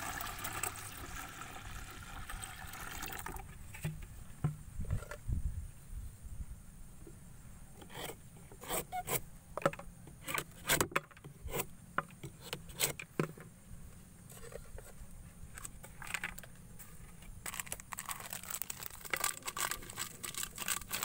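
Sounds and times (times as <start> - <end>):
dry clicks and scraping: 7.8 - 13.5, 14.3 - 21.0.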